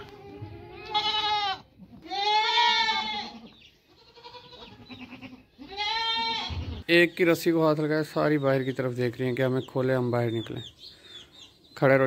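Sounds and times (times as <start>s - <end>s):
goats bleating: 0.0s - 6.9s.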